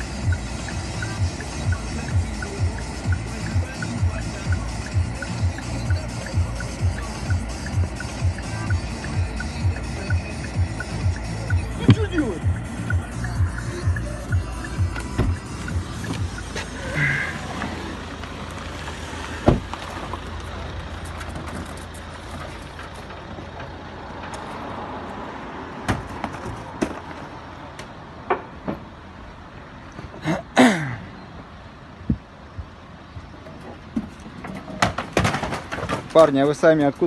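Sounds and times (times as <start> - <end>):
steady low rumble: 0.0 - 24.0.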